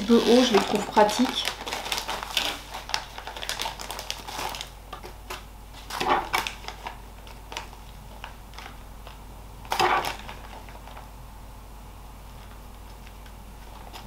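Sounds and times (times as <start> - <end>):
plastic bag crinkling: 0.0 - 11.1.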